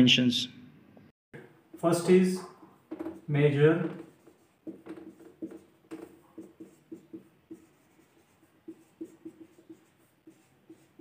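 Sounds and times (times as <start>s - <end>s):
marker squeaking on whiteboard: 1.7s - 11.0s.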